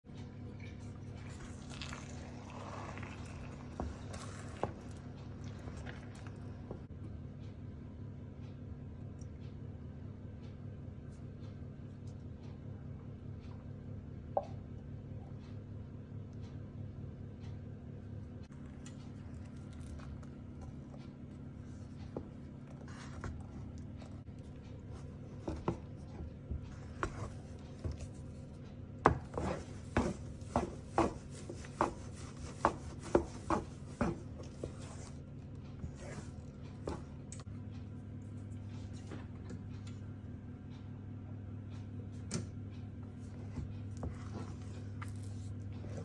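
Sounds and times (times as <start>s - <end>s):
steady low hum: 0.1s - 46.0s
wooden spatula scraping a pan: 29.1s - 35.2s.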